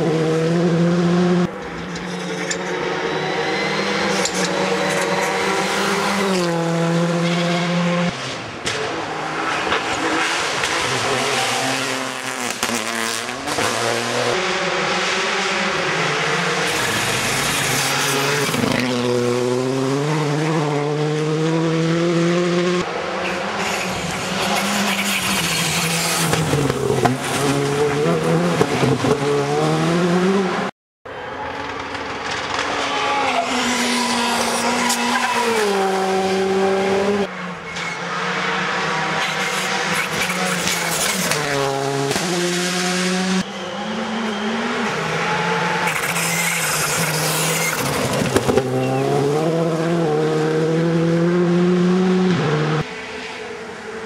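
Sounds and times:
rally cars revving past: 0.0 - 30.7, 32.5 - 54.0.

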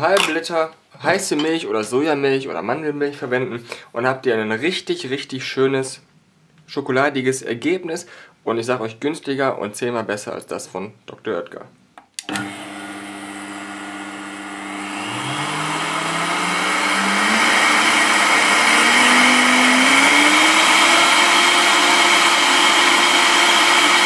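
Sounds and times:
blender switch click: 12.0 - 12.6
blender motor whirring: 12.2 - 24.0.

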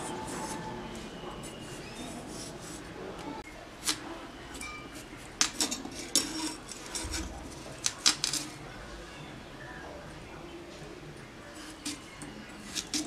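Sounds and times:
potato skin scraping on blade: 11.6 - 13.0.

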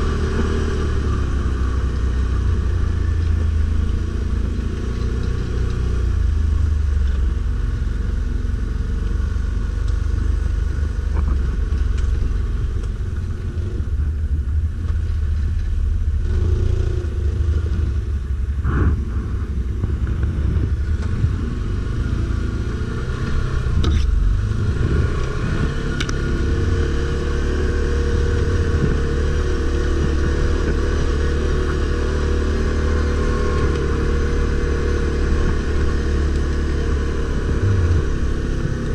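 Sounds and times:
atv engine revving: 21.0 - 38.9.

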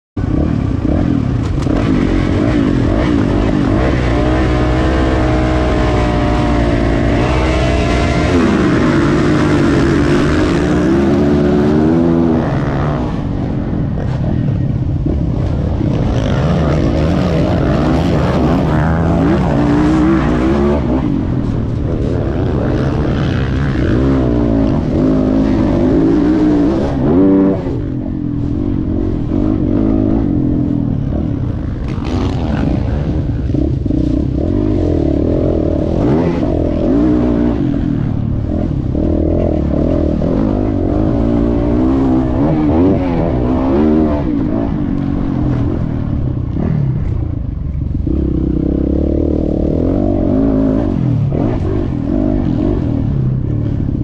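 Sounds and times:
drone of other motorbikes: 0.2 - 54.0
motocross bike engine revving: 0.2 - 54.0.

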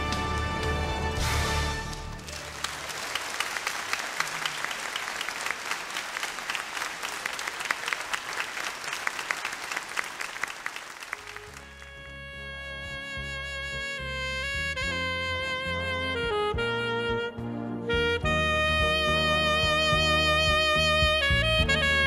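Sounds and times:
congregation applauding: 0.0 - 12.1.

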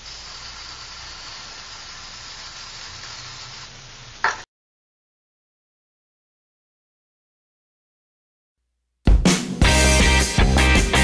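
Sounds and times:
aerosol spray can hissing: 0.0 - 4.4.

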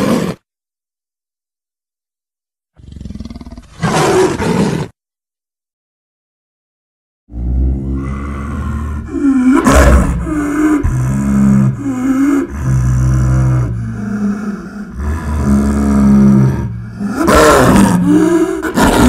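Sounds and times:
monster roars and growls: 0.0 - 0.4, 7.3 - 19.0.

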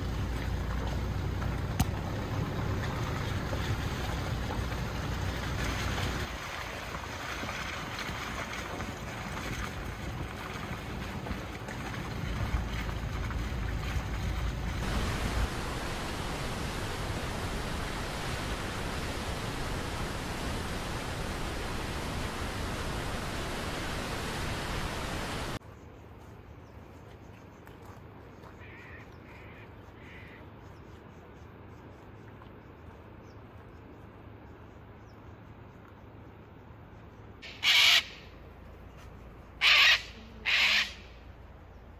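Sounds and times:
car wind and road noise: 0.0 - 25.6
heavy low rumble: 9.8 - 25.6
steady hiss: 14.8 - 25.6
crow cawing: 37.6 - 38.0, 39.6 - 41.0.

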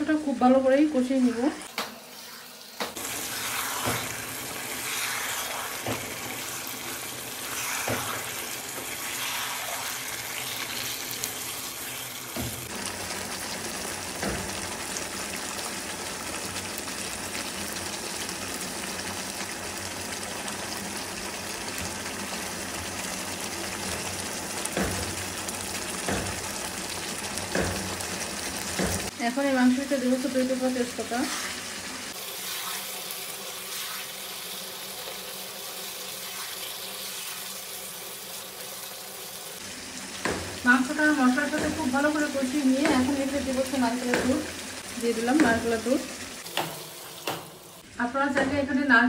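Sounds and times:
chicken sizzling in oil: 0.2 - 49.0.

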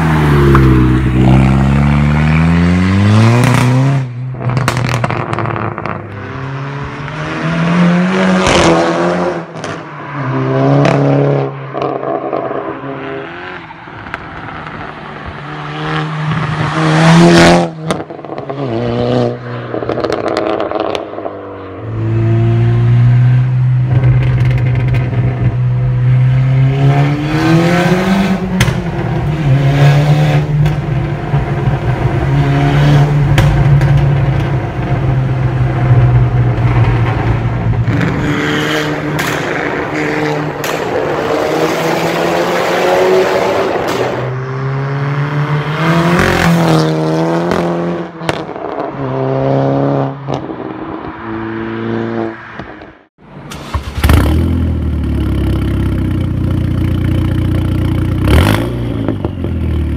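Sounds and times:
car engine revving: 0.0 - 59.9
exhaust cracks and pops: 4.4 - 6.1, 23.9 - 25.5, 39.2 - 39.9.

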